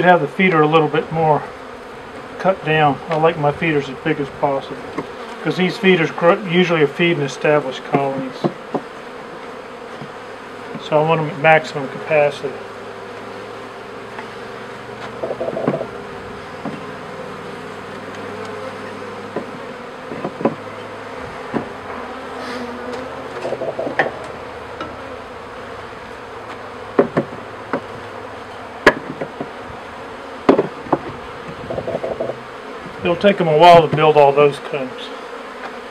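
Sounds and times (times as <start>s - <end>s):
honeybees buzzing: 0.0s - 35.9s
wooden knocks and clicks: 20.1s - 20.6s, 23.4s - 24.2s.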